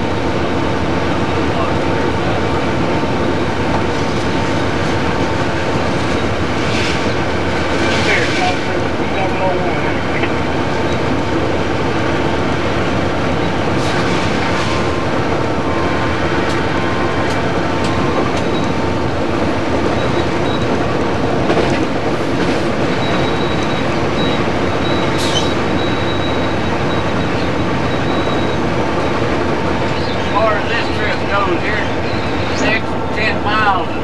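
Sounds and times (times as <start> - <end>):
locomotive engine and running noise: 0.0 - 34.0
high squeak: 25.0 - 26.5.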